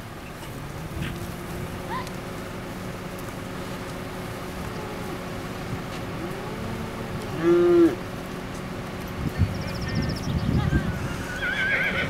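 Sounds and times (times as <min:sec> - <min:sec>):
vehicle engine idling: 0:00.0 - 0:12.0
cow mooing: 0:06.2 - 0:08.1
herd mooing faintly: 0:06.2 - 0:08.1.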